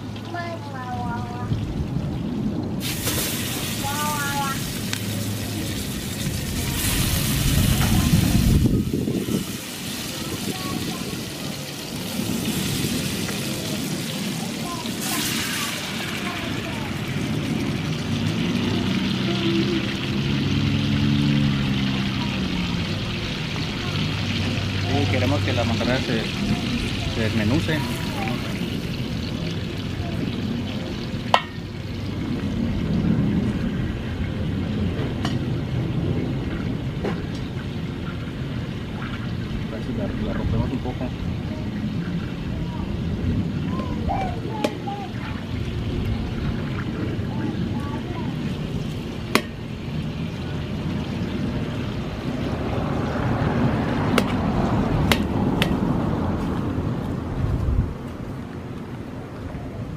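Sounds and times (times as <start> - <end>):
fish frying in butter: 2.8 - 42.7, 44.7 - 56.0.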